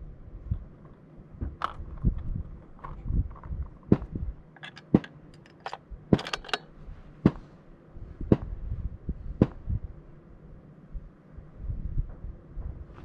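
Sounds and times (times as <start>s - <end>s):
rifle handling clicks and knocks: 0.8s - 7.4s.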